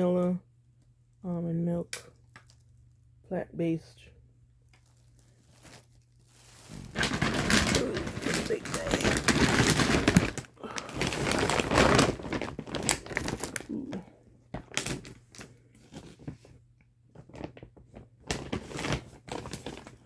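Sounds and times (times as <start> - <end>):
plastic bag rustling: 4.6 - 16.6, 17.2 - 20.0.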